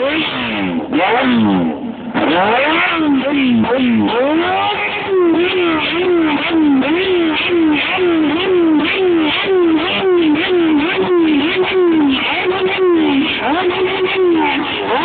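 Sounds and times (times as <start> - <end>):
motorcycle engine revving hard: 0.0 - 15.0.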